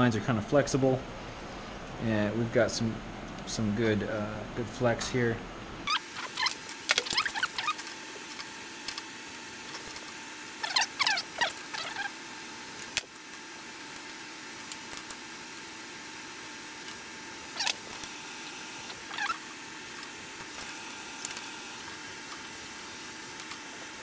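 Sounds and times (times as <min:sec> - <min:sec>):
faint hum: 0:00.0 - 0:24.0.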